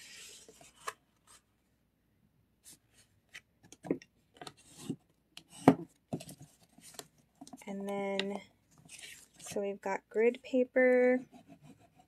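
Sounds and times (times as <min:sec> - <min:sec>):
paper rubbing and rustling: 0:08.8 - 0:09.6.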